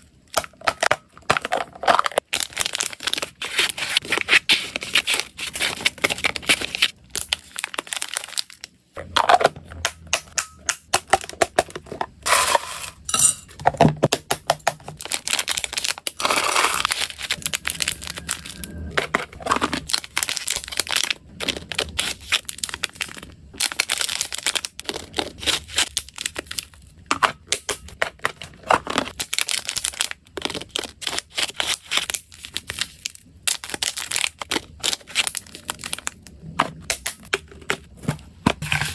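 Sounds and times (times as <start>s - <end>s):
plastic bags crinkling: 0.5s - 9.5s, 13.8s - 26.8s, 28.6s - 38.9s
dry treats clattering: 11.0s - 18.4s.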